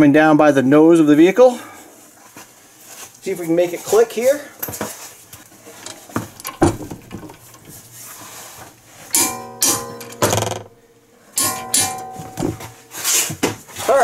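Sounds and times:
ringing pitched sounds: 9.1s - 13.1s.

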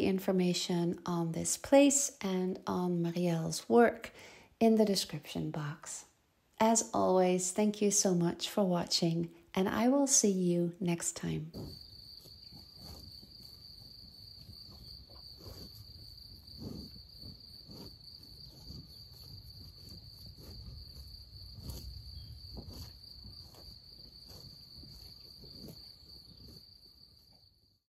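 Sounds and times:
crickets trilling: 11.2s - 27.8s.

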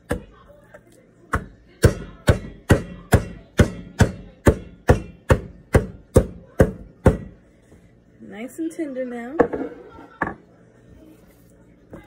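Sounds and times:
meat mallet pounding steak: 1.3s - 7.4s.

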